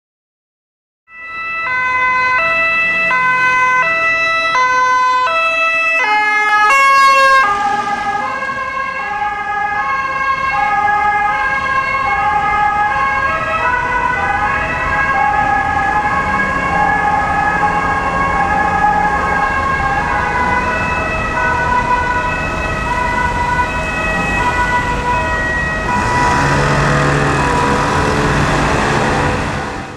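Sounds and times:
ambulance two-tone siren: 1.1s - 29.9s
traffic noise: 1.1s - 29.9s
vehicle engine and tyre rush: 6.1s - 29.9s.

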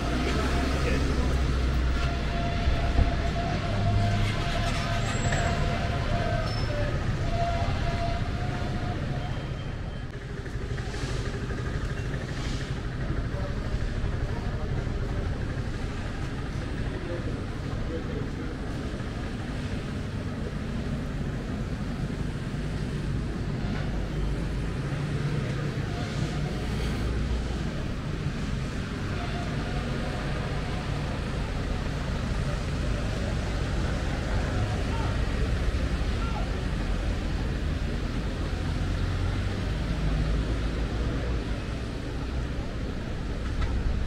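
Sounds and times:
low street rumble: 0.0s - 44.0s
traffic noise: 0.0s - 44.0s
vehicle engine humming: 0.0s - 44.0s.

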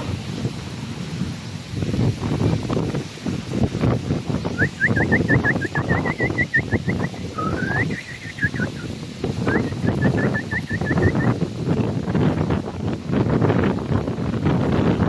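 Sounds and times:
wind rumble on microphone: 0.0s - 15.0s
high chirping calls: 4.5s - 11.4s.

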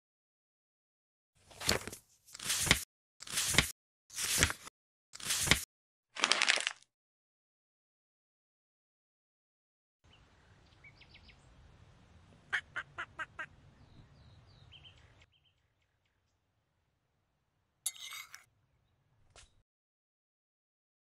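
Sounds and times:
birds chirping: 10.1s - 11.6s, 12.5s - 16.4s
duck quacking: 12.5s - 13.5s.

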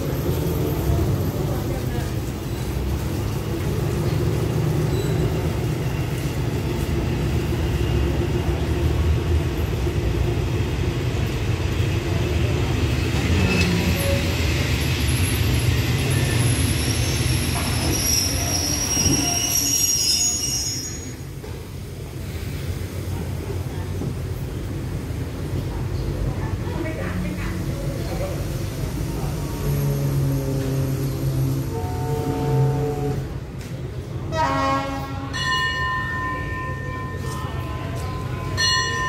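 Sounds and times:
train rolling with low rumble: 0.0s - 39.0s
wheel and brake squeal: 4.9s - 5.5s, 13.4s - 21.3s.

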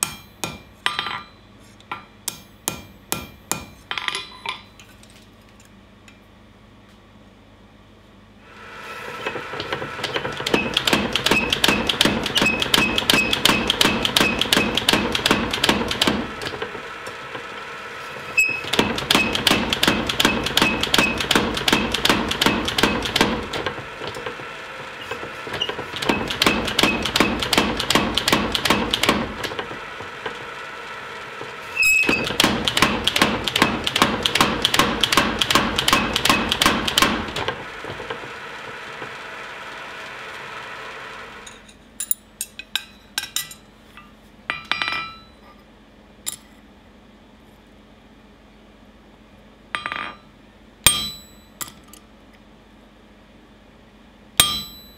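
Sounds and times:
power hammer striking steel: 0.0s - 1.3s, 1.9s - 4.4s, 10.3s - 16.8s, 18.4s - 24.4s, 25.0s - 30.4s, 31.8s - 38.2s, 50.9s - 51.6s, 54.4s - 54.9s
sharp metal clang: 50.9s - 51.8s, 54.4s - 54.9s.

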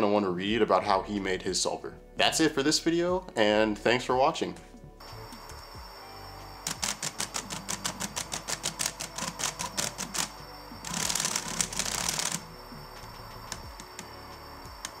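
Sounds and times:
robot clacking through cube turns: 6.7s - 10.3s.

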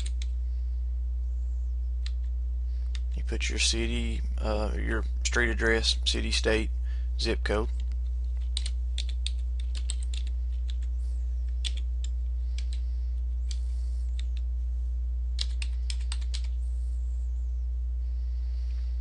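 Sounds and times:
low electrical hum: 0.0s - 19.0s
keyboard typing: 7.8s - 10.9s, 11.5s - 12.8s, 15.4s - 16.6s.

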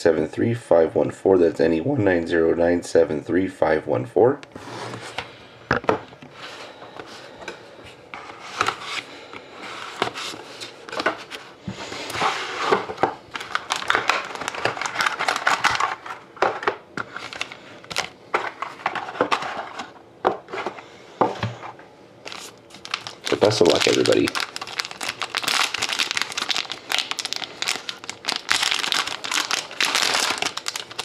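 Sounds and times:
foil card pack handled: 22.2s - 31.0s
paper rustling: 22.2s - 31.0s.

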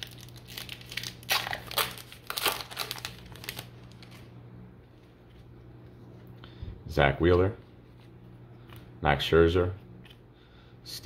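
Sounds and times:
wrapper crinkling as torn open: 0.0s - 4.3s.

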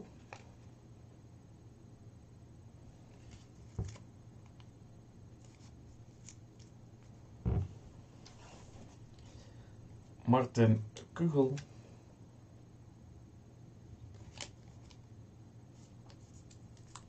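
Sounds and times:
low steady hum: 0.0s - 17.0s
knock: 7.4s - 7.7s
loud thump: 7.4s - 7.8s
paper crackling: 14.1s - 15.0s.

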